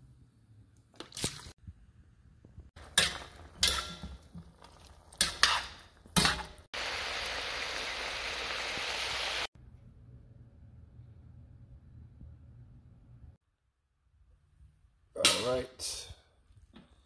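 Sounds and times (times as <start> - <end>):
meat sizzling in a pan: 6.8 - 9.5.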